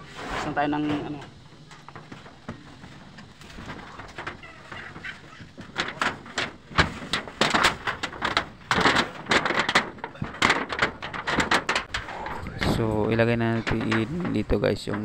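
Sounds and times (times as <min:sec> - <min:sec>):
knocking on metal roof: 0:01.5 - 0:12.0.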